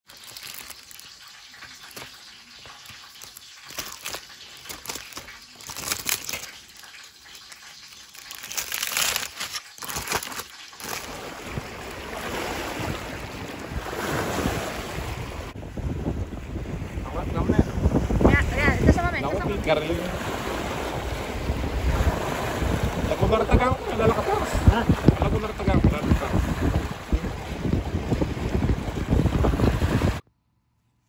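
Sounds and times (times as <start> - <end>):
aluminium foil crinkling: 0.0 - 11.2
water lapping on rocks: 0.0 - 30.2
wind: 0.0 - 31.0.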